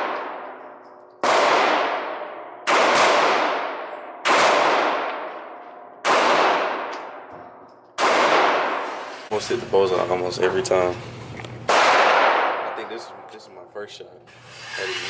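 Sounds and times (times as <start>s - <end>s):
gunshots echoing indoors: 0.0s - 9.3s, 11.7s - 13.3s.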